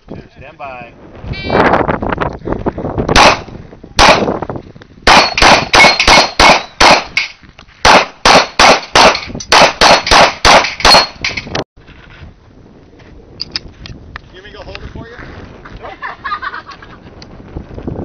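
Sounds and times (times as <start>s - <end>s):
pistol shots: 3.1s - 4.3s, 5.1s - 11.4s.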